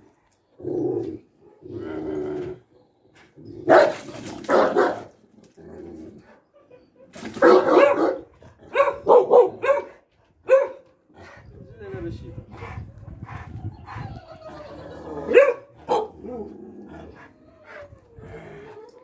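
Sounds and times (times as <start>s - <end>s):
large dogs barking: 3.6s - 5.2s, 6.2s - 11.4s, 12.6s - 18.9s.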